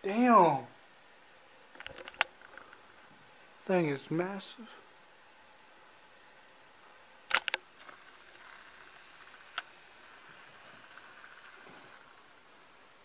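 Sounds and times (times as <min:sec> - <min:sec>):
sharp camera clicks: 0:07.3 - 0:09.8.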